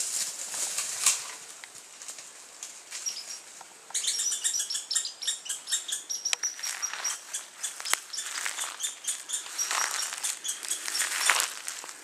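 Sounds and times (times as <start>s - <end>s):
small animal chattering chirps: 3.0s - 11.3s.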